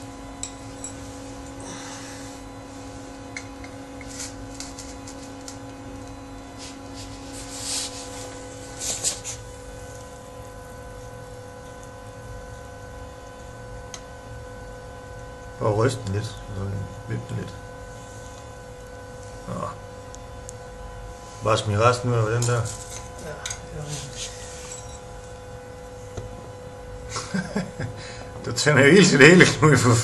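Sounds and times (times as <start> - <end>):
steady electrical hum: 0.0 - 30.0
metal tongs scraping crucible: 3.3 - 7.2, 22.3 - 25.4.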